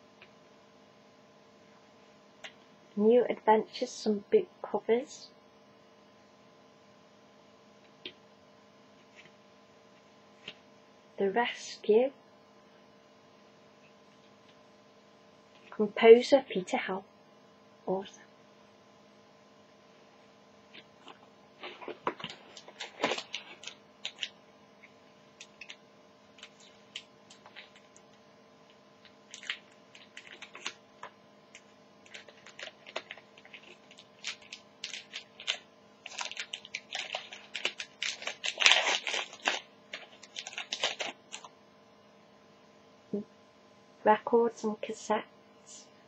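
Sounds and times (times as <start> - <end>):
cards clicking and rustling: 21.0 - 24.4, 26.4 - 28.0, 29.0 - 41.5
wrapper crinkling and tearing: 21.0 - 24.4, 25.4 - 28.1, 29.0 - 41.5.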